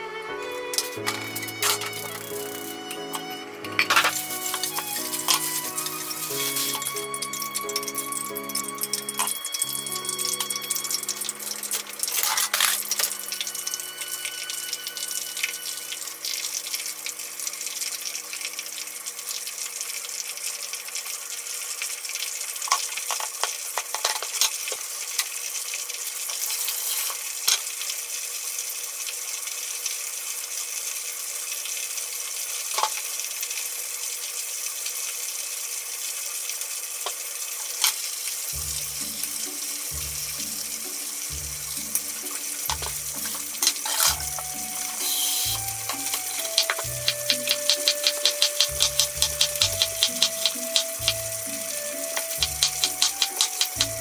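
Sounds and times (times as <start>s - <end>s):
hot oil sizzling: 0.7s - 54.0s
utensils clicking: 0.8s - 13.4s, 42.7s - 51.3s, 52.1s - 54.0s.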